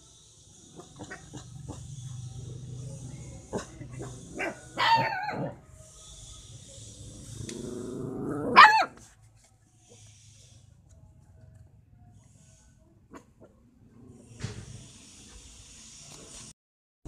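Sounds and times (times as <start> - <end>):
puppy barking: 0.8 - 1.9, 3.5 - 5.6, 8.4 - 9.0
puppy growling: 7.2 - 8.9.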